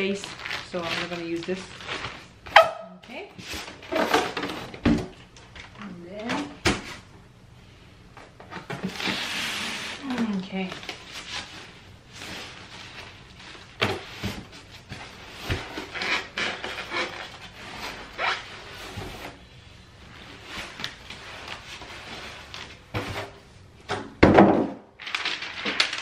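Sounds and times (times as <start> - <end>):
plastic rustling: 0.0 - 2.6, 8.4 - 23.5, 24.9 - 26.0
foam rubbing and creaking: 8.9 - 10.2.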